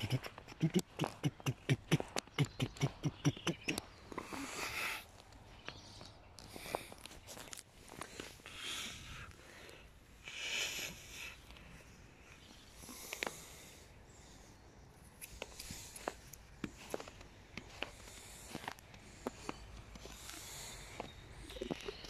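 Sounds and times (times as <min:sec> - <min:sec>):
small irregular clicks: 0:11.4 - 0:13.6, 0:15.0 - 0:22.0
crunching of snow: 0:15.4 - 0:22.0.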